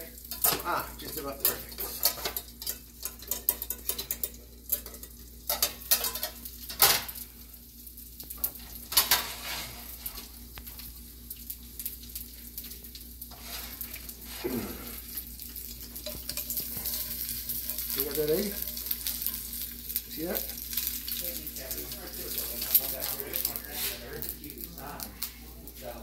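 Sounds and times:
egg sizzling in a pan: 0:00.0 - 0:26.0
metal pan lid and tongs clattering: 0:00.3 - 0:07.1, 0:08.9 - 0:09.7.

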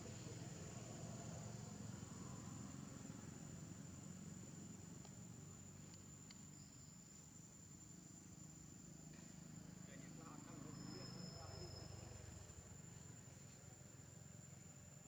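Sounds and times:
high-pitched insect drone: 0:10.3 - 0:12.8.

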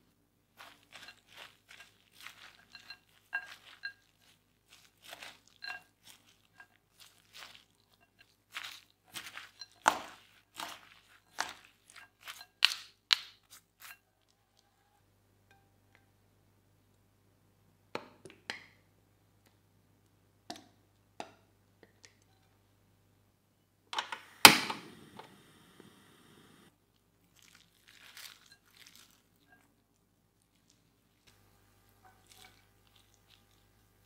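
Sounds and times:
chopsticks stirring in glass bowl: 0:00.6 - 0:14.8, 0:27.4 - 0:29.8, 0:32.0 - 0:34.0
gas igniter click: 0:24.0 - 0:26.6
gas flame catching: 0:24.0 - 0:26.7.

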